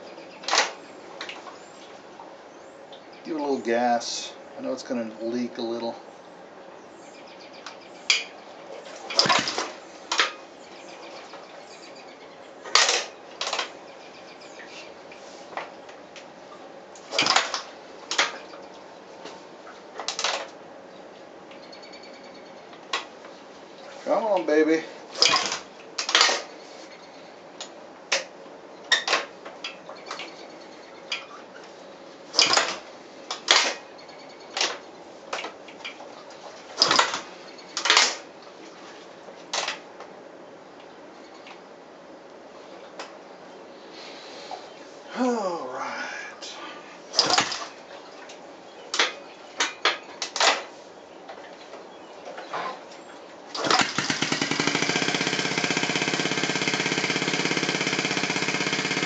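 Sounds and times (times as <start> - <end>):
motorcycle engine starting bursts: 9.1 - 10.4, 17.1 - 18.3, 25.1 - 26.5, 32.3 - 32.8, 36.8 - 38.3, 47.1 - 47.8, 53.5 - 59.0.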